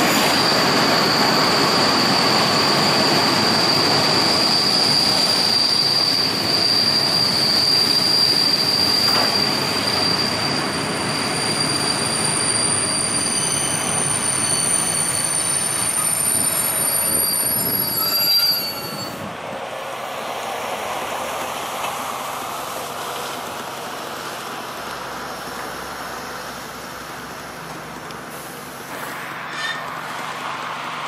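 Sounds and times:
train brakes squealing: 0.0 - 19.3, 28.3 - 31.0
train rolling rumble: 0.0 - 31.0.

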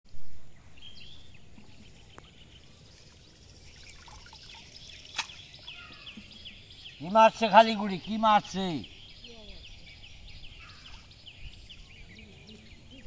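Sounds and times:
small birds chirping: 0.6 - 13.0
water trickling and dribbling: 1.0 - 8.1
water splashing: 1.5 - 6.5.

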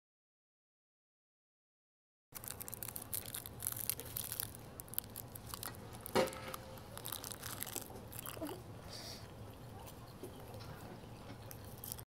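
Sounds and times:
person biting food: 2.4 - 8.6, 11.4 - 12.0
food rustling and crinkling: 2.4 - 12.0.

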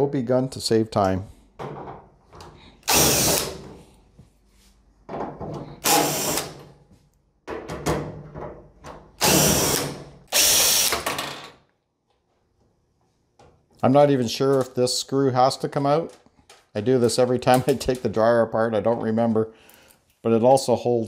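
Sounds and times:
cordless drill running: 2.8 - 3.6, 5.8 - 6.6, 9.2 - 11.0.

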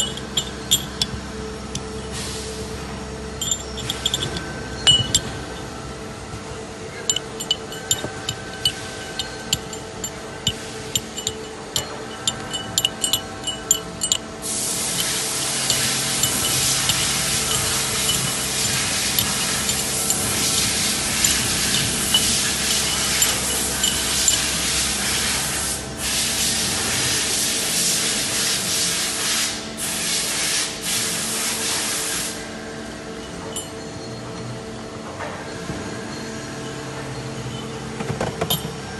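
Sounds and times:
metal rings clinking: 0.0 - 2.5, 3.3 - 6.0, 6.8 - 25.6, 32.9 - 34.8, 36.1 - 38.9
machinery hum: 0.0 - 38.9
loud spraying hiss: 14.4 - 19.6.

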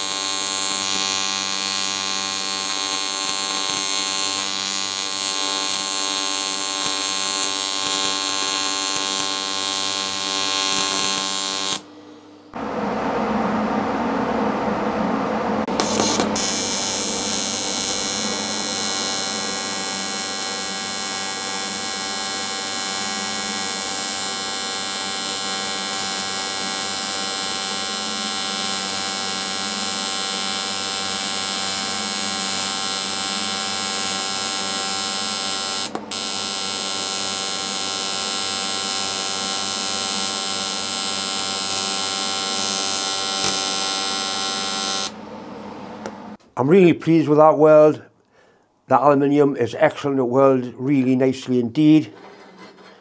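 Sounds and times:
welding arc buzzing: 0.0 - 11.9, 15.7 - 45.2.

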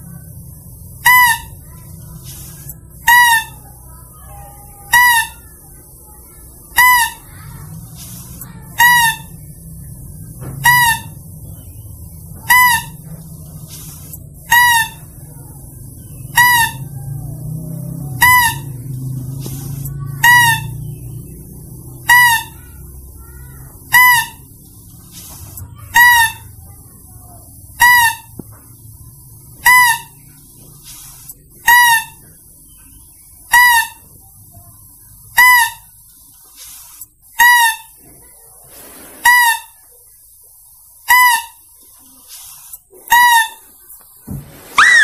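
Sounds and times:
high-pitched squealing lure call: 1.0 - 1.7, 2.4 - 5.6, 6.7 - 7.4, 8.7 - 9.5, 10.6 - 11.3, 12.4 - 13.1, 13.8 - 15.3, 16.1 - 17.1, 17.9 - 19.0, 19.8 - 22.8, 23.8 - 24.6, 25.9 - 26.5, 27.8 - 28.4, 29.6 - 30.3, 31.6 - 32.3, 33.5 - 34.1, 35.3 - 36.0, 37.4 - 38.0, 39.2 - 39.8, 41.0 - 41.6, 43.1 - 43.7, 44.7 - 45.0.

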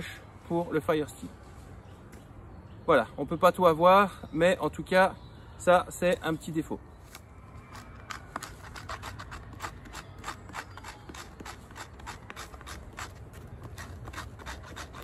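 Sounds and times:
knife scraping bark: 7.1 - 15.0.

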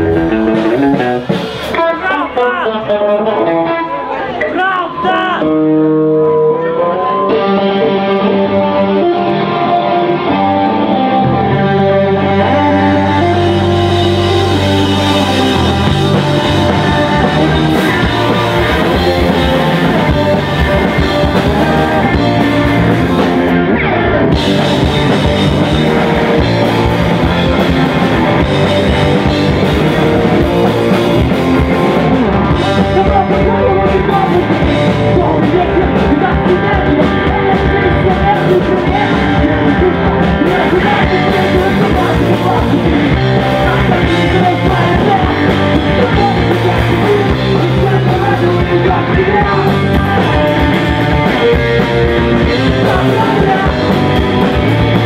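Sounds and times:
drum kit: 0.0 - 2.6, 7.3 - 55.0
electric guitars: 0.0 - 55.0
person singing into a microphone: 12.2 - 26.6, 32.3 - 55.0.

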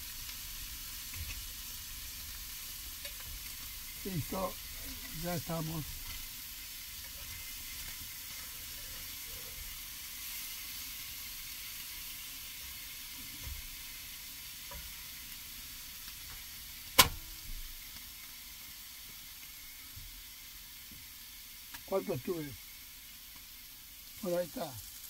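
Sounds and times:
fish fillets sizzling in a pan: 0.0 - 25.0
utensil stirring in a pan: 0.0 - 25.0
sharp knock: 17.0 - 17.3.

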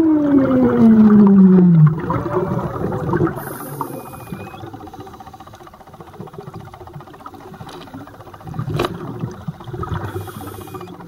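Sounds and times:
underwater bubbling: 0.0 - 11.0.

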